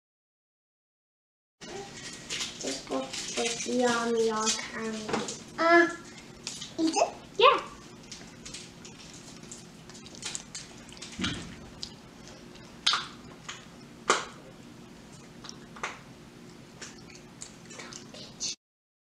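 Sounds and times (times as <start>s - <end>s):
faint steady hum: 1.6s - 18.6s
child eating and licking fingers: 7.8s - 13.7s, 15.1s - 18.3s.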